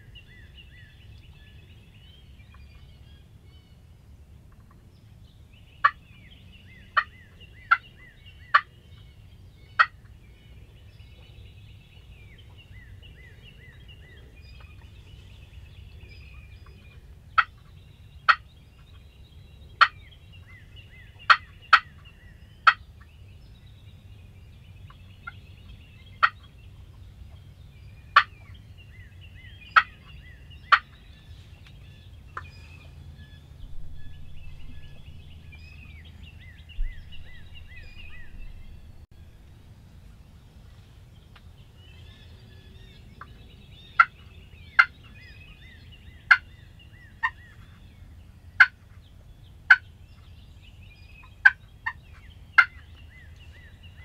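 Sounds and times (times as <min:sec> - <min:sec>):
turkey clucks: 0:06.9 - 0:07.9, 0:09.8 - 0:10.1, 0:16.6 - 0:19.0, 0:19.8 - 0:20.0, 0:21.1 - 0:22.8, 0:26.2 - 0:26.5, 0:28.1 - 0:28.5, 0:29.6 - 0:31.0, 0:33.6 - 0:39.0, 0:48.6 - 0:48.9, 0:51.2 - 0:52.9
high-pitched bird chatter: 0:33.6 - 0:39.0.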